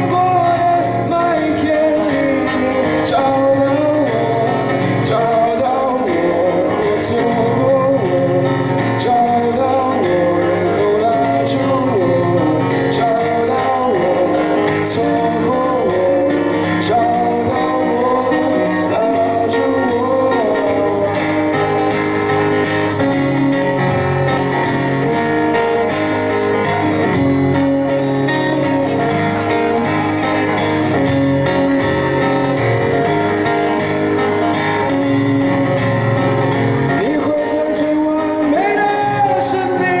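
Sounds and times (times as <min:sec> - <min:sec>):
man singing: 0:00.0 - 0:23.0, 0:36.7 - 0:40.0
acoustic guitar: 0:00.0 - 0:40.0.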